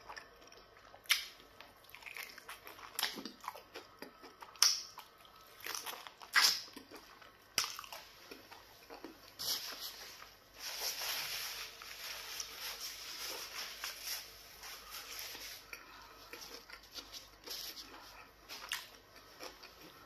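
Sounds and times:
soft chewing: 0.0s - 11.0s, 11.6s - 20.0s
rustling hiss: 9.4s - 15.6s.

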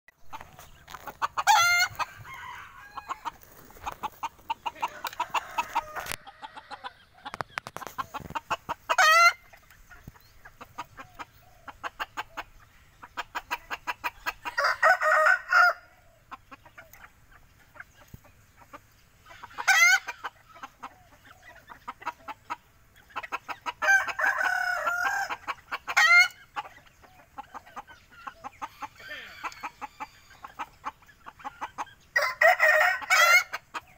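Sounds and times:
chickens clucking: 0.1s - 33.9s
rooster crowing: 1.5s - 3.4s, 4.9s - 6.8s, 14.5s - 15.9s, 23.8s - 25.4s, 32.2s - 33.5s.

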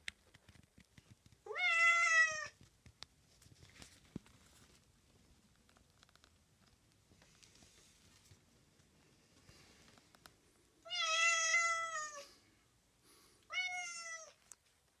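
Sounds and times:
cat meowing: 1.5s - 2.6s, 10.9s - 12.2s, 13.5s - 14.4s.

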